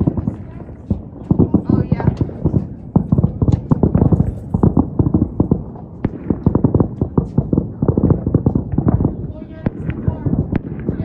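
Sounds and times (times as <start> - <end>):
fireworks bangs and pops: 0.0 - 11.0.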